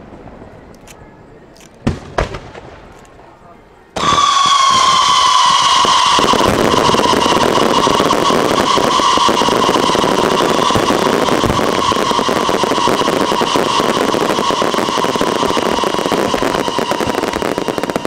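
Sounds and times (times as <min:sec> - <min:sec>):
fireworks crackling: 0:00.0 - 0:18.0.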